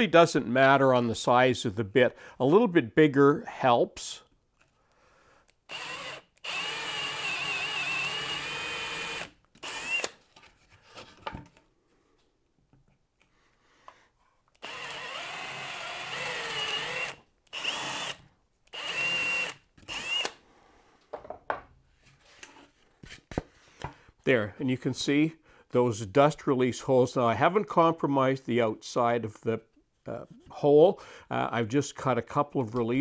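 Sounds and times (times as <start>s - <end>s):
drill trigger blips: 5.6s - 10.2s, 14.6s - 20.4s
drill boring into wood: 5.7s - 10.2s, 14.6s - 20.4s.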